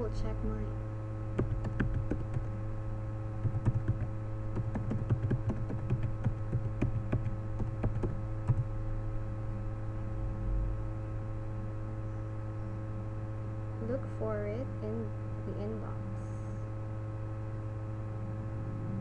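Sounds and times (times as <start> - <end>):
electrical mains hum: 0.0 - 19.0
computer keyboard typing: 1.4 - 2.5, 3.4 - 8.7.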